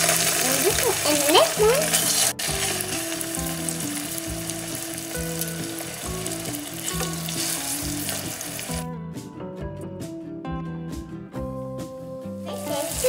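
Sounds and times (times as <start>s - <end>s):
salmon sizzling in hot oil: 0.0s - 8.8s, 12.4s - 13.0s
background music: 0.0s - 13.0s.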